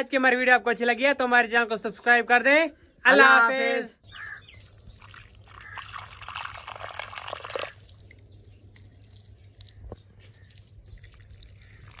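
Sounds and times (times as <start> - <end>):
water pouring into clay pot: 4.6 - 10.0, 10.7 - 12.0.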